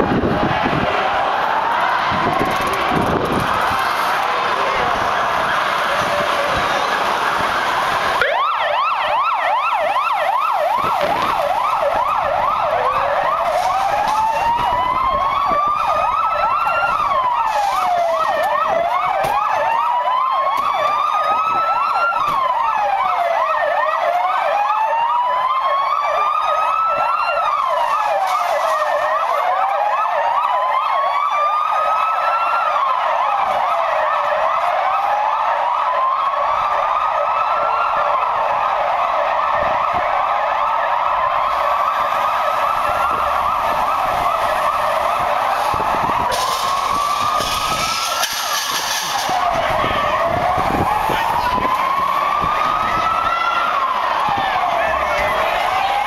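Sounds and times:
siren rapid yelp: 0.0s - 56.0s
siren slow wail: 0.0s - 56.0s.

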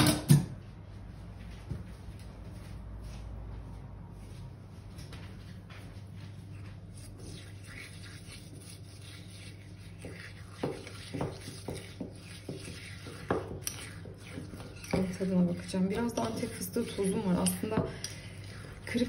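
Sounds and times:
spoon scraping paste in bowl: 6.5s - 19.0s.

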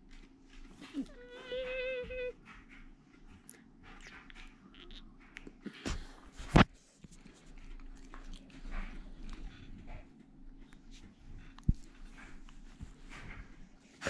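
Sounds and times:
dog mouth noises: 0.7s - 6.7s.

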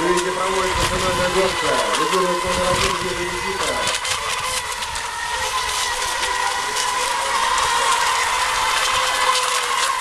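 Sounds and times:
rc boat electric motors whining: 0.0s - 10.0s.

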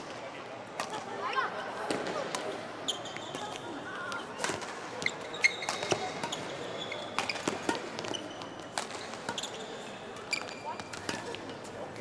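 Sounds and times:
shoes squeaking on court: 2.8s - 11.8s
rackets striking shuttlecock: 3.1s - 11.6s.

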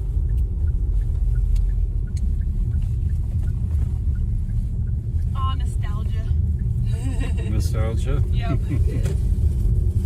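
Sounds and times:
car interior low rumble: 0.0s - 10.0s.

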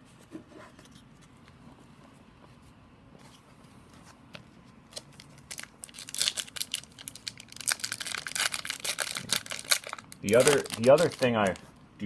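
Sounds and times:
foil wrapper crinkling and tearing: 4.9s - 11.7s.

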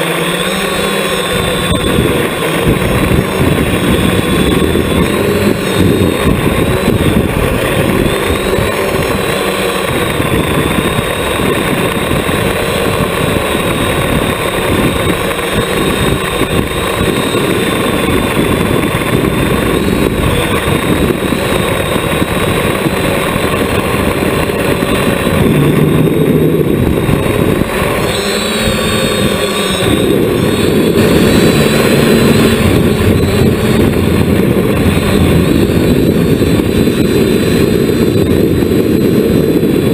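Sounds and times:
drone propellers whirring: 0.0s - 39.9s.

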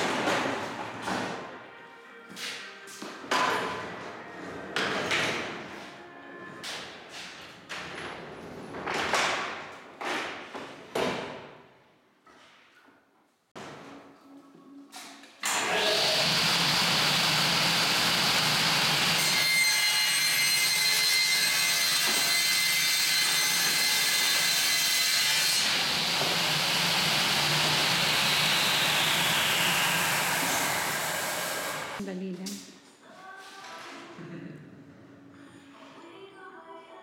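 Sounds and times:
panel saw cutting wood sheet: 15.4s - 32.0s.

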